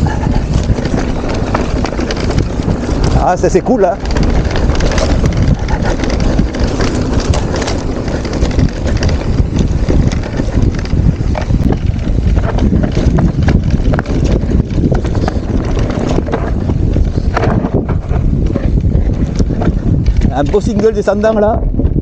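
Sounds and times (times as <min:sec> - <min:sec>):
bike clattering: 0:00.0 - 0:22.0
bike tyres rumbling over dirt: 0:00.0 - 0:22.0
wind buffeting microphone: 0:00.0 - 0:22.0.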